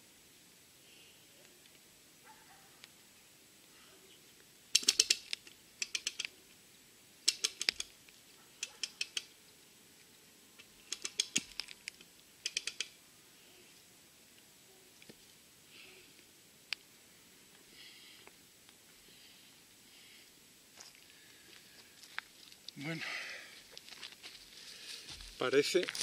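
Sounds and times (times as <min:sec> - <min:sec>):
ratchet clicking: 0:04.7 - 0:06.3.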